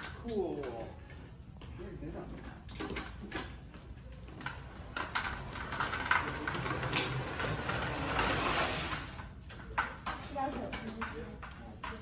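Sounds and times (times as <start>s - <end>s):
trike wheels rattling scrape: 4.5s - 9.3s.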